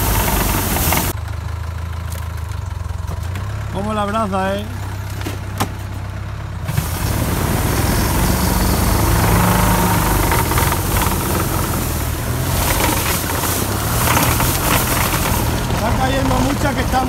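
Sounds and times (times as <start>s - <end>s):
shaken branches rushing hiss: 0.0s - 1.1s, 6.7s - 17.0s
tractor engine at full power: 0.0s - 17.0s.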